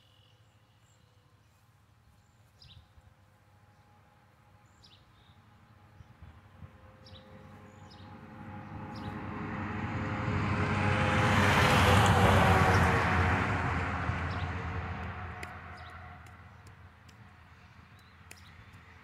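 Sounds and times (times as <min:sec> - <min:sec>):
truck driving past: 0:06.8 - 0:18.3.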